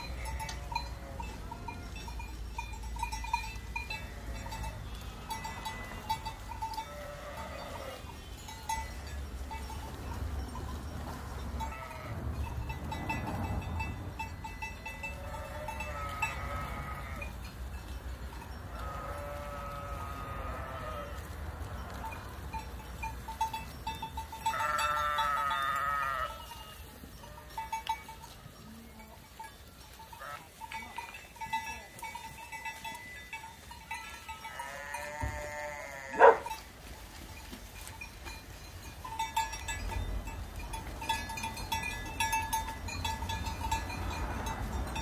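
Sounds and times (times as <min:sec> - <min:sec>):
sheep bleating: 0:00.0 - 0:02.0, 0:03.9 - 0:06.2, 0:06.8 - 0:08.1, 0:15.1 - 0:17.3, 0:18.8 - 0:21.3, 0:24.5 - 0:26.4, 0:34.1 - 0:36.5.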